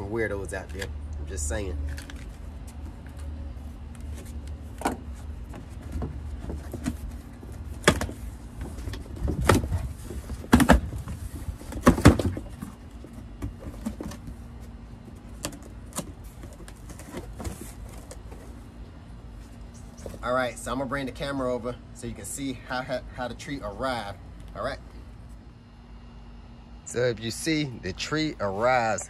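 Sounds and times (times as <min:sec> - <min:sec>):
wind rumble on microphone: 0:08.6 - 0:11.8.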